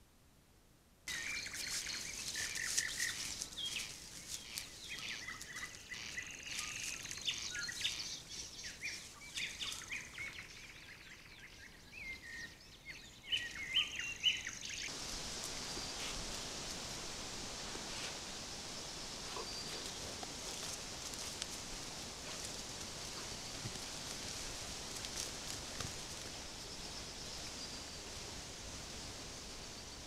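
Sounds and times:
background hiss: 0.0 - 30.0
birds chirping and trilling: 1.1 - 14.9, 18.4 - 20.8.

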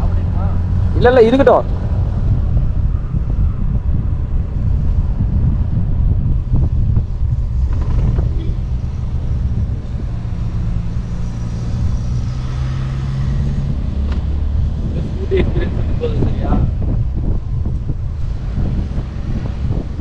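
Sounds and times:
wind and road rumble: 0.0 - 20.0
scooter engine hum: 1.7 - 20.0.

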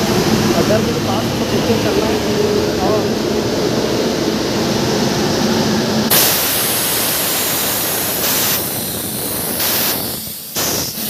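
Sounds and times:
locomotive equipment rushing noise: 0.0 - 6.1
high hiss of air: 6.1 - 11.0.

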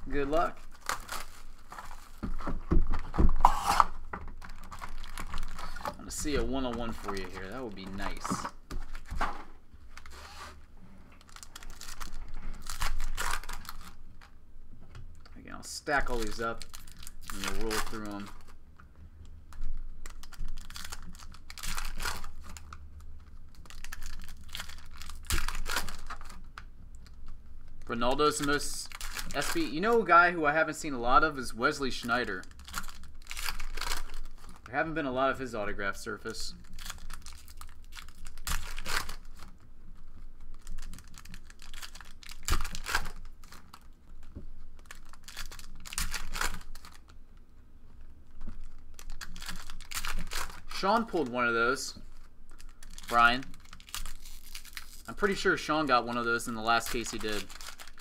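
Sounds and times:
foil packs crinkling: 0.1 - 10.4, 11.2 - 14.3, 15.8 - 18.6, 19.5 - 47.2, 48.2 - 58.0.

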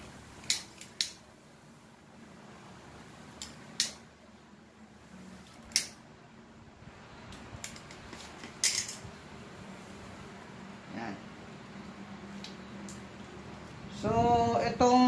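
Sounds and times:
hand cutter snipping wire: 0.4 - 1.2, 3.4 - 4.0, 5.5 - 6.0.

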